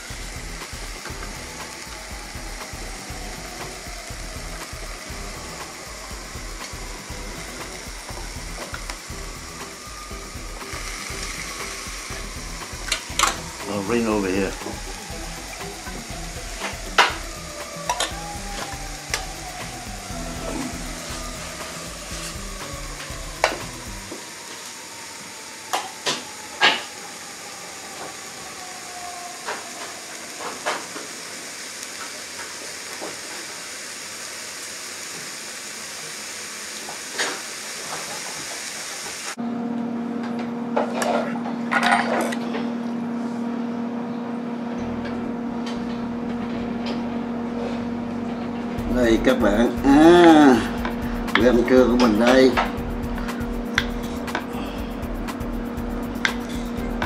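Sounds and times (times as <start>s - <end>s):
steady low hum: 0.0s - 24.1s, 42.4s - 57.0s
meat sizzling in grill press: 0.0s - 39.4s, 44.8s - 57.0s.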